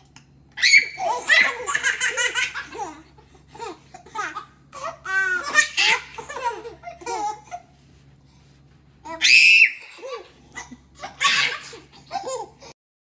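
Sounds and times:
babies laughing and babbling: 0.6 - 7.8, 9.0 - 12.8
baby high-pitched squeal: 9.1 - 9.9.

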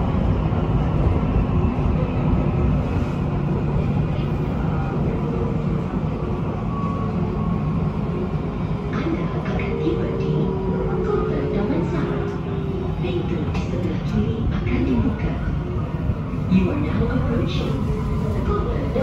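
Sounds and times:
rumble of train wheels on rail: 0.0 - 19.0.

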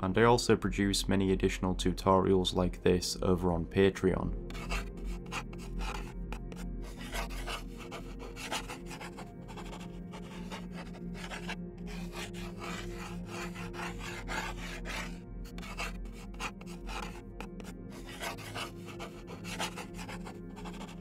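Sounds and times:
pencil scratching on paper: 4.5 - 21.0.

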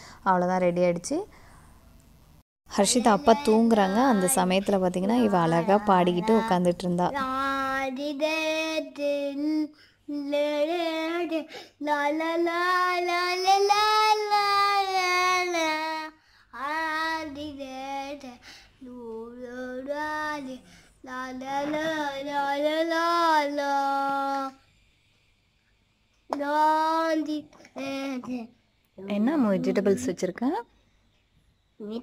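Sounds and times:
girl singing unaccompanied: 2.9 - 24.6, 26.3 - 28.6.

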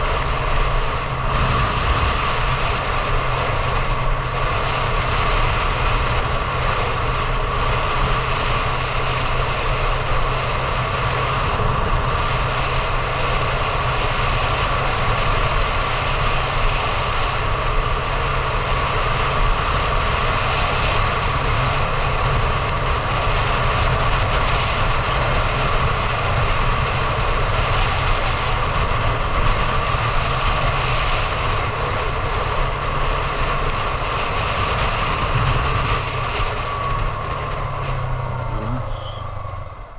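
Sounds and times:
motorcycle engine running: 0.0 - 39.9
wind on microphone: 0.0 - 39.9.

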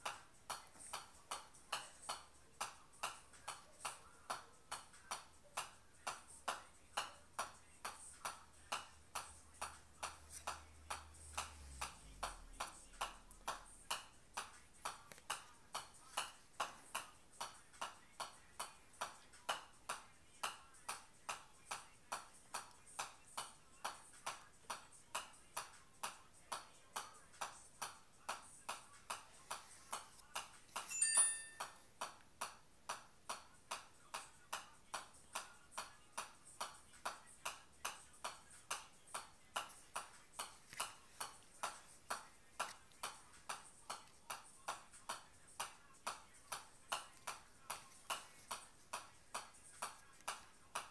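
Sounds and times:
short ringing tone: 30.9 - 31.6.

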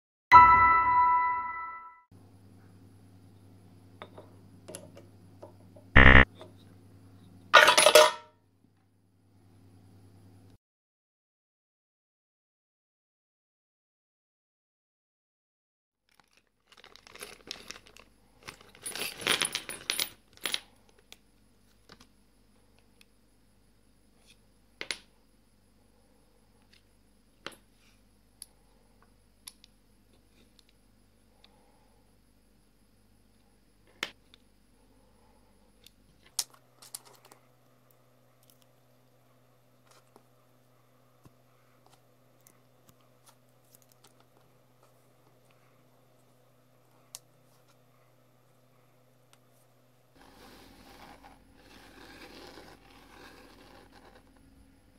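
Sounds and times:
short loud buzz: 6.0 - 6.2
steady low hum: 6.0 - 7.5.

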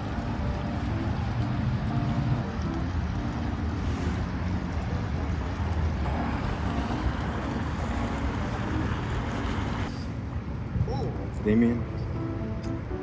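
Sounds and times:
fountain water pouring: 0.0 - 9.9.

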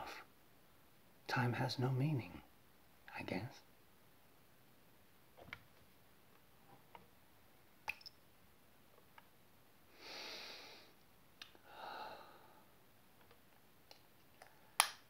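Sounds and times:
glass bottle clicks: 7.9 - 8.2
man sniffing deeply: 9.9 - 10.9
man sighing: 11.6 - 12.6.

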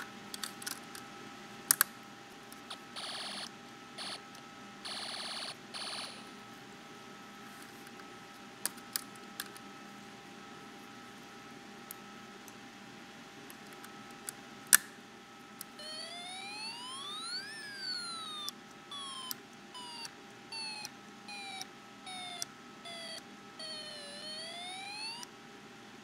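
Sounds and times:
electronic siren: 2.7 - 4.2, 4.8 - 6.3, 15.7 - 25.3.

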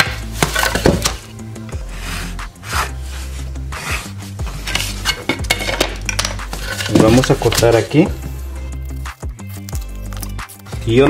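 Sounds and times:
background music with bass: 0.0 - 11.0
pencil scratching: 1.8 - 5.1
board scraping over drywall: 1.8 - 5.3.

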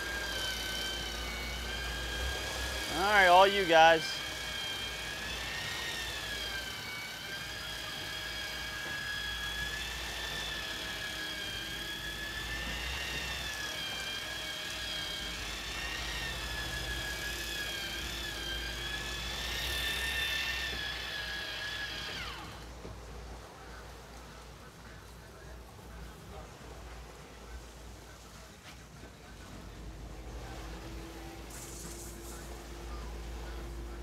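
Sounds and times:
boat engines running: 25.2 - 34.0.

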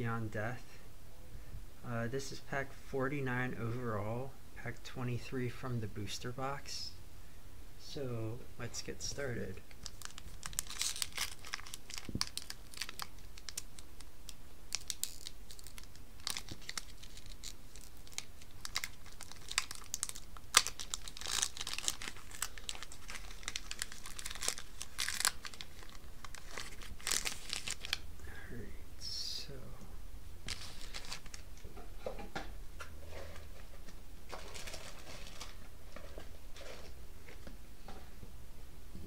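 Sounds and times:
foil wrapper crackling: 9.7 - 28.0, 30.5 - 31.5, 34.3 - 35.7.

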